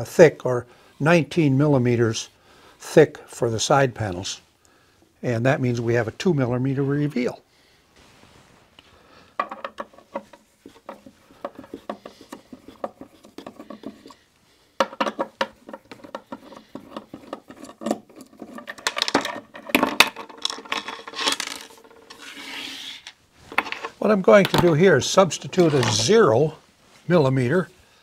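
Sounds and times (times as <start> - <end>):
knocks and scrapes: 8.0 - 26.5.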